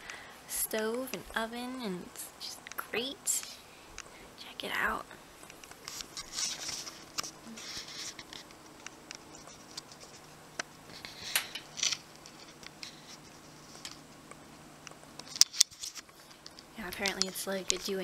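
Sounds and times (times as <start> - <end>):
faint steady hum: 0.0 - 18.0
camera handling rustles: 5.4 - 10.2, 10.9 - 14.0, 15.2 - 17.8.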